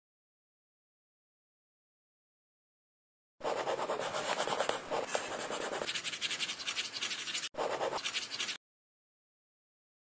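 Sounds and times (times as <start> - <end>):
pencil scratching on paper: 3.4 - 8.6.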